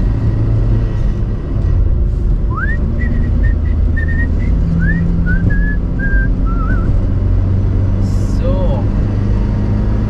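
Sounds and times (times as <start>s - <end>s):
car interior engine drone: 0.0s - 10.0s
person whistling: 2.5s - 7.0s.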